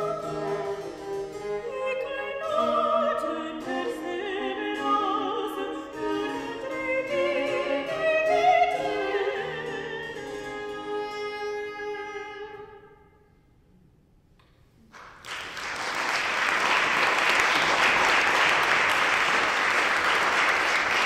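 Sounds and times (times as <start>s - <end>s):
harpsichord: 0.0s - 11.1s
soprano singing: 0.0s - 13.0s
viola: 0.0s - 13.8s
audience applauding: 14.9s - 21.0s.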